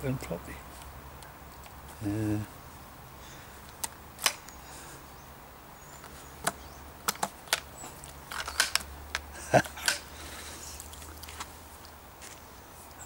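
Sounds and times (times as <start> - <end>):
metal clicks of air rifle barrel: 3.6 - 4.6, 6.4 - 10.1.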